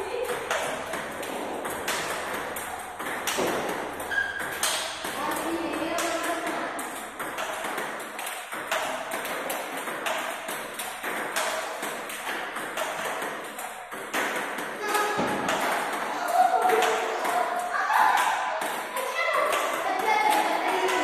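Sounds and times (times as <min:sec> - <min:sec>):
table tennis ball clicks: 0:00.2 - 0:18.9.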